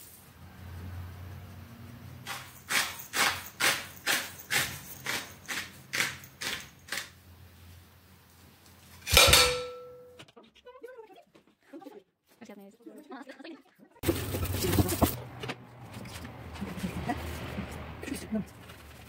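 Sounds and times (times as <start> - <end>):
sharp clink with ring: 9.1 - 10.2.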